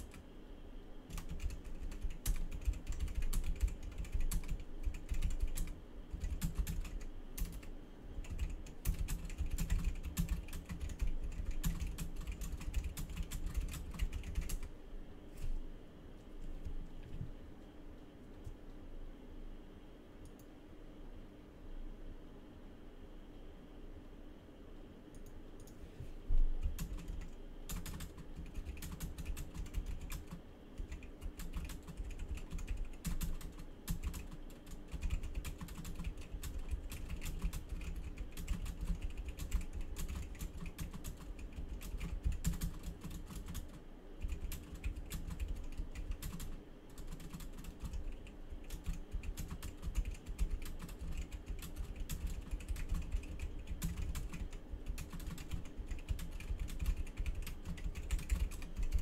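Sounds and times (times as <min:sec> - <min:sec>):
computer keyboard typing: 0:00.0 - 0:00.2, 0:01.1 - 0:14.7, 0:26.6 - 0:59.0.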